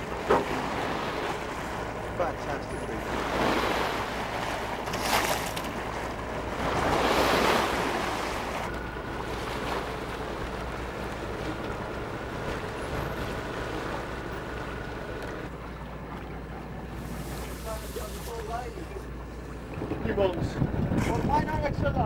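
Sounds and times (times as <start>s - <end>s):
sea water rushing and splashing: 0.0s - 22.0s
wind on microphone: 19.7s - 22.0s.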